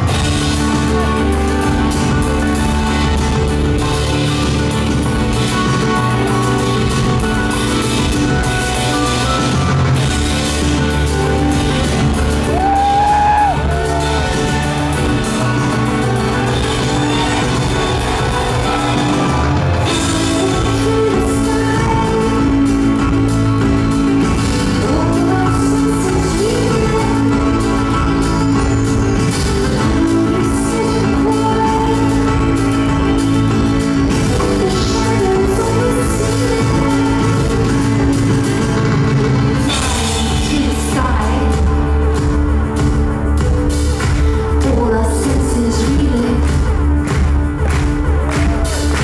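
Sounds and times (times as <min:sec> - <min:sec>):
live rock band playing: 0:00.0 - 0:49.0
woman singing: 0:19.8 - 0:23.5, 0:24.3 - 0:28.6, 0:29.6 - 0:38.6, 0:39.7 - 0:42.4, 0:44.5 - 0:47.1.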